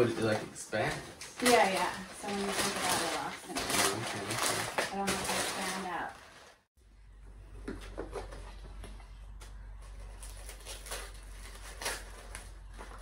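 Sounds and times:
low steady hum: 6.8 - 13.0.

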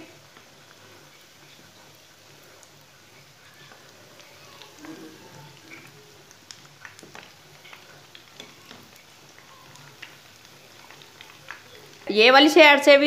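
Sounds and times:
food deep-frying in oil: 0.0 - 13.0
metal spoon moving through oil: 0.1 - 12.2.

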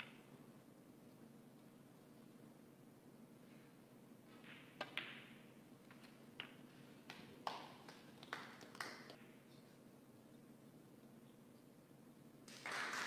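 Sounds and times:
snooker balls clicking: 4.3 - 9.4.

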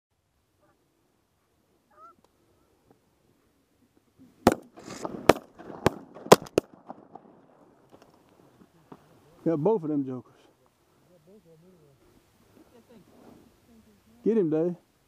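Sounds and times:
shotgun blasts: 4.4 - 7.6.

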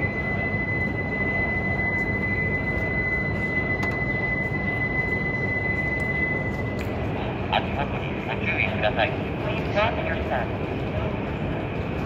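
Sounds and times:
steady high electronic tone: 0.0 - 8.1
low station hum: 0.0 - 12.0.

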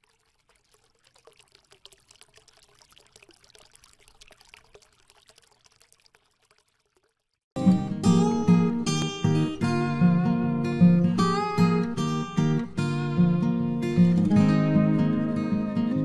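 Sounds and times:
faint trickling water: 0.0 - 7.6.

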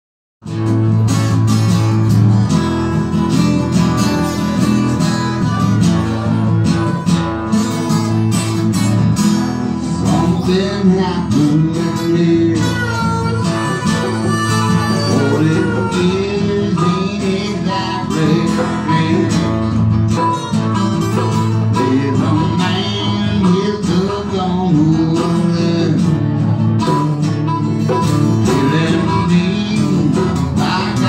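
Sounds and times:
strummed acoustic guitars: 0.4 - 31.0
harmonica playing: 2.8 - 8.4, 11.5 - 22.9, 27.2 - 31.0.

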